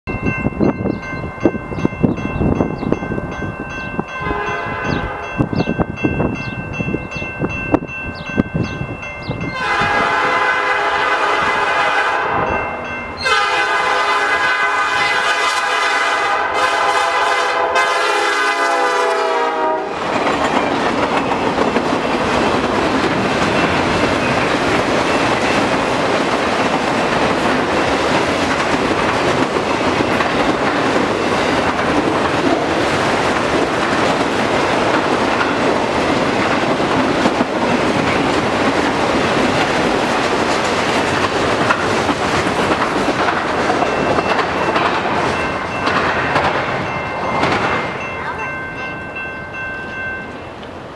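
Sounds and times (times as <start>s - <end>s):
train wheels rumbling on rails: 0.1s - 50.9s
locomotive air horn: 4.2s - 5.2s, 9.5s - 12.6s, 13.2s - 20.0s.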